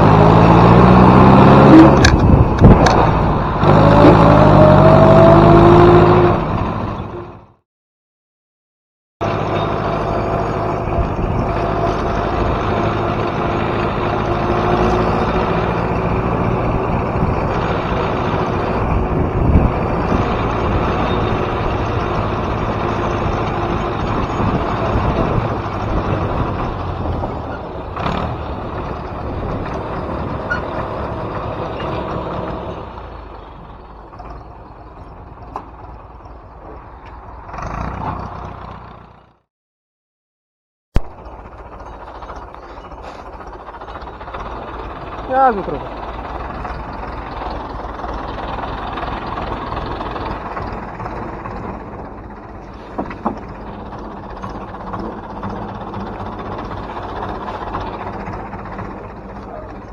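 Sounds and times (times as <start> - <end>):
tractor diesel engine under load: 0.0 - 7.6, 9.2 - 39.5, 41.0 - 59.9
engine knocks: 41.0 - 59.9.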